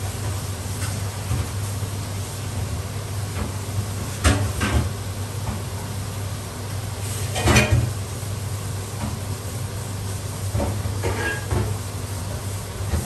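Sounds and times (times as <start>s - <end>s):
kitchenware clattering: 11.0s - 11.8s.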